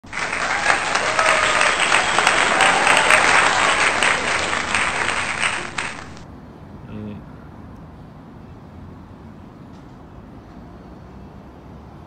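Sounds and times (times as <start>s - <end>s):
crowd applauding: 0.0s - 6.2s.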